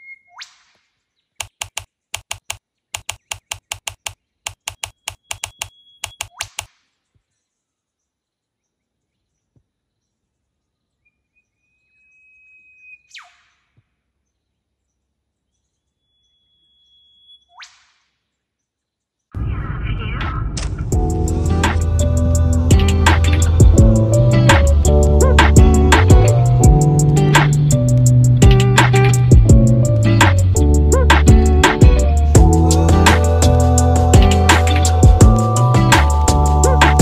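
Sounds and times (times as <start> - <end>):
bird whistled call with whip-crack: 0.0 - 1.6, 4.8 - 6.9, 11.9 - 13.8, 16.1 - 18.1
rapid sharp clicks: 1.4 - 6.8.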